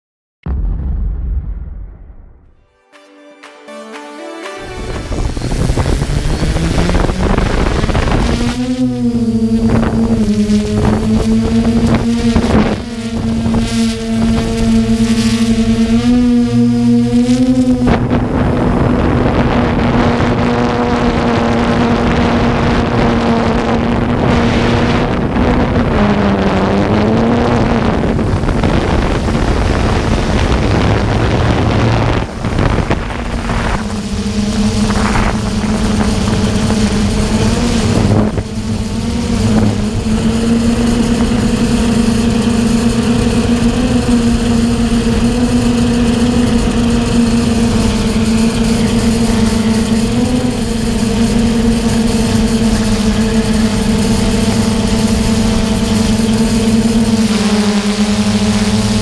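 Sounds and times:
drone propellers humming: 4.4 - 59.0
rush of air: 4.8 - 11.0.

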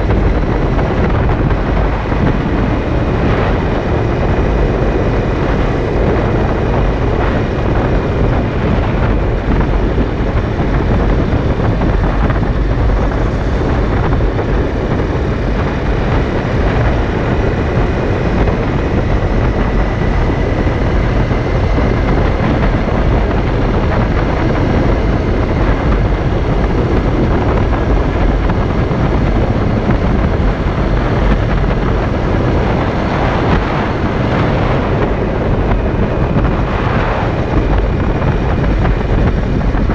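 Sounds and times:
motorcycle engine cruising: 0.0 - 39.9
wind rush on microphone: 0.0 - 39.9.

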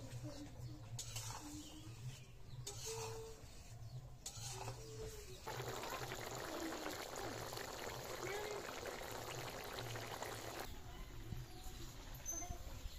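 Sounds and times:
spoon scraping in pan: 0.9 - 5.8
curry bubbling: 5.4 - 10.7.

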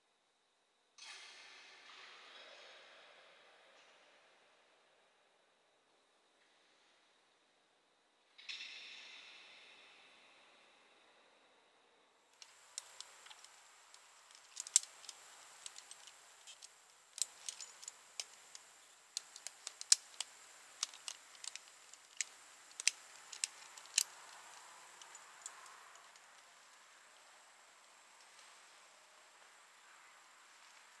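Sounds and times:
climbing gear clicks and taps: 12.4 - 26.5.

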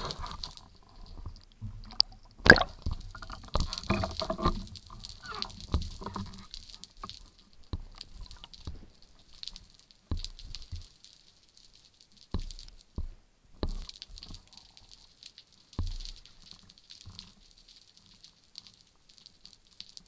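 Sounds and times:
sea water sloshing: 0.0 - 7.2.

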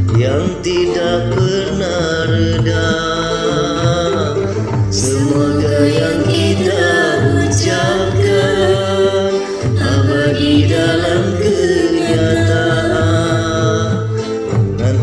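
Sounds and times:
drum and bass beat: 0.0 - 15.0
person singing: 0.0 - 15.0.

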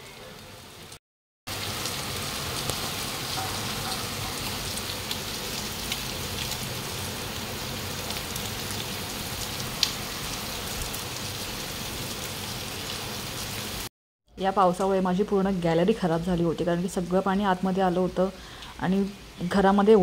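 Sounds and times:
heavy rain: 0.4 - 13.9.

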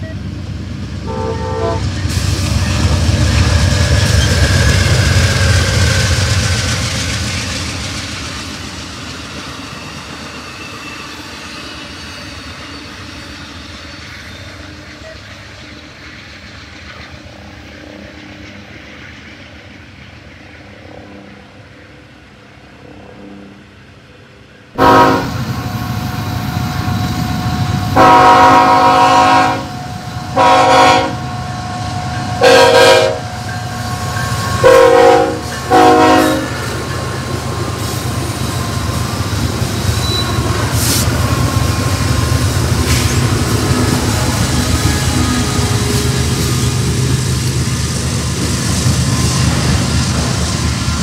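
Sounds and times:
locomotive rumble passing: 0.0 - 20.6, 24.8 - 51.0
locomotive horn blasts: 1.1 - 1.8, 24.8 - 25.4, 27.8 - 31.5, 32.2 - 33.4, 34.0 - 36.6.

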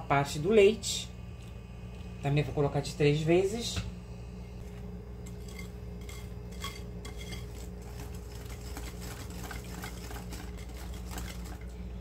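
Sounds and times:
whisk scraping glass bowl: 5.3 - 11.7.

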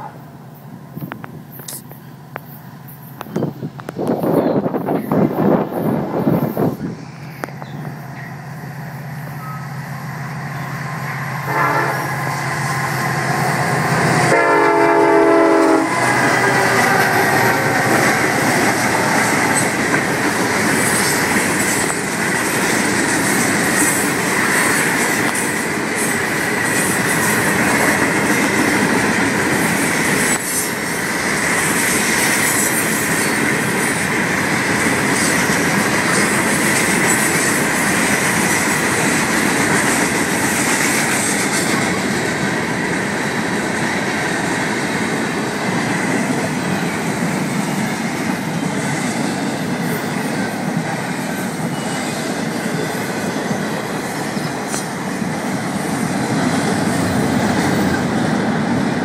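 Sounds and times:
train wheels rumbling on rails: 0.0 - 59.0
locomotive horn: 11.2 - 12.5, 13.2 - 18.5.

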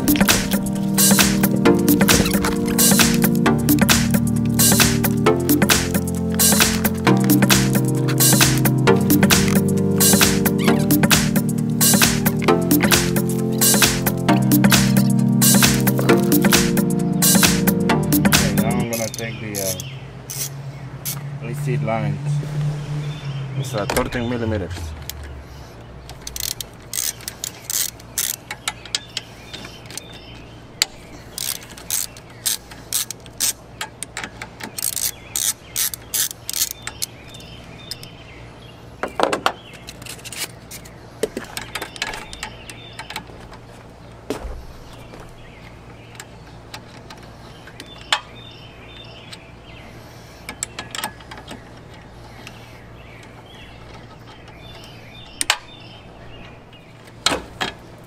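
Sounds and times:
hand ratchet clicking: 18.4 - 20.5, 26.1 - 30.1, 30.8 - 37.1.

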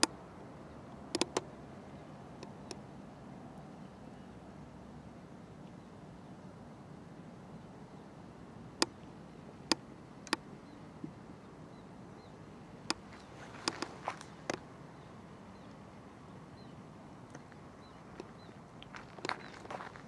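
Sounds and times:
steady low outdoor hiss: 0.0 - 20.0
sharp clicks: 1.1 - 1.5, 9.7 - 10.4, 12.9 - 14.6.

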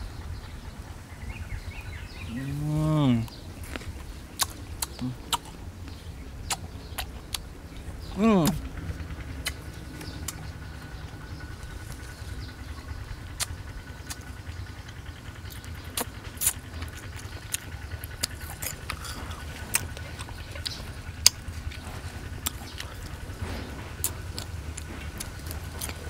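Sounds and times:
steady low rumble: 0.0 - 26.0
man chewing with crisp clicks: 2.5 - 26.0.

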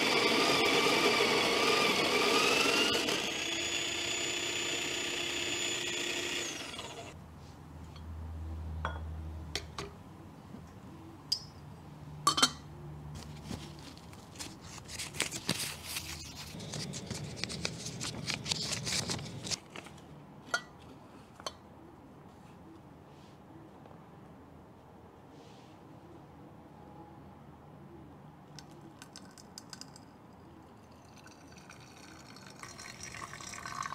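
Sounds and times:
coffee grinder motor whine: 0.0 - 7.2, 16.5 - 19.6
paper filter rustling: 13.2 - 20.1.

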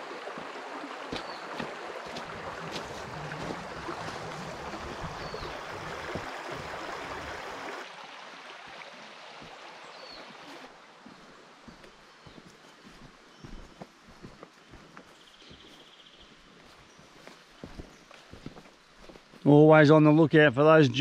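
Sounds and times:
creek water rushing: 0.0 - 15.8.

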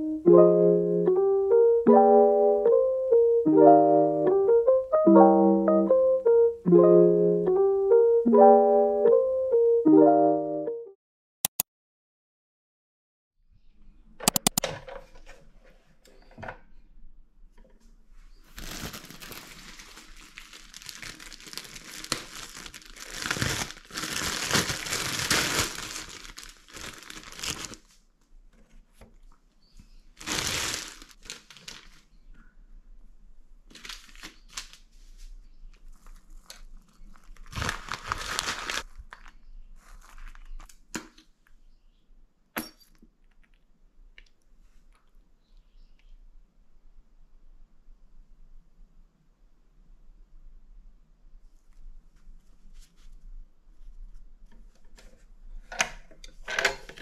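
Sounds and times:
plastic packaging crinkling: 18.5 - 28.0, 30.2 - 32.2, 33.7 - 34.9, 35.8 - 40.7.

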